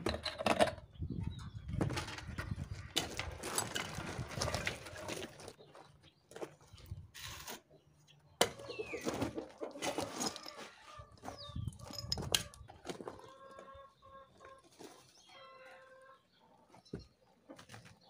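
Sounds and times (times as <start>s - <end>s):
birds calling: 7.7s - 18.0s.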